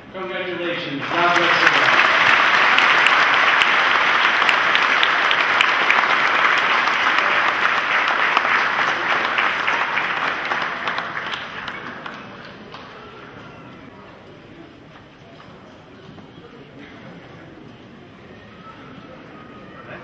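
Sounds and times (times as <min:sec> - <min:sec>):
congregation applauding: 0:00.7 - 0:13.5.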